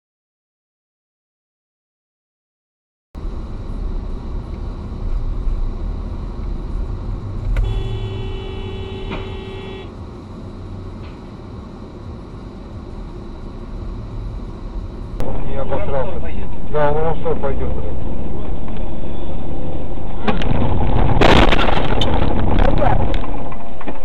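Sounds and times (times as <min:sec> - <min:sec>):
car engine and tyres rumbling: 0:03.2 - 0:24.0
car horn blast: 0:07.5 - 0:10.0.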